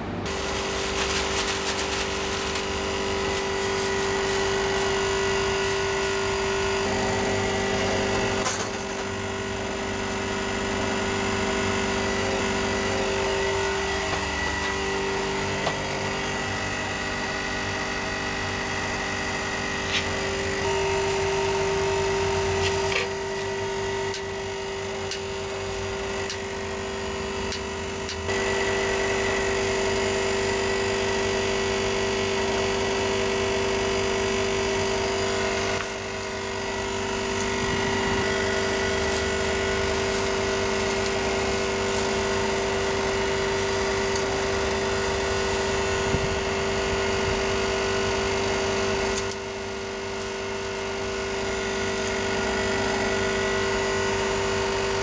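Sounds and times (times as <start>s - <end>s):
steady mechanical hum: 0.0s - 55.0s.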